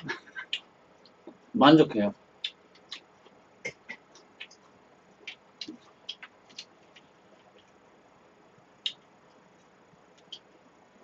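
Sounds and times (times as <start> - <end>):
eating clicks and smacks: 2.4 - 7.8, 8.8 - 10.6.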